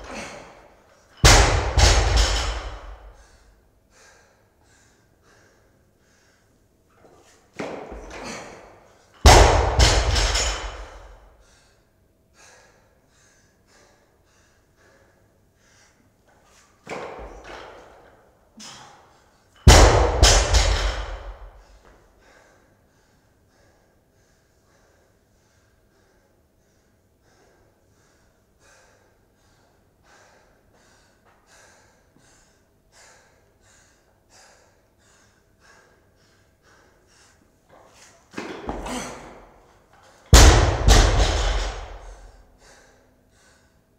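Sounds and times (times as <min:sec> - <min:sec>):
barbell bouncing: 0:01.2 - 0:03.1, 0:09.3 - 0:11.2, 0:16.9 - 0:18.0, 0:19.7 - 0:21.6, 0:40.4 - 0:42.3
barbell thudding on floor: 0:01.2 - 0:03.1, 0:09.3 - 0:11.2, 0:16.9 - 0:17.8, 0:38.4 - 0:39.5, 0:40.4 - 0:42.3
faint hard breathing: 0:02.3 - 0:09.2, 0:10.2 - 0:16.8, 0:20.9 - 0:40.2, 0:40.9 - 0:43.9.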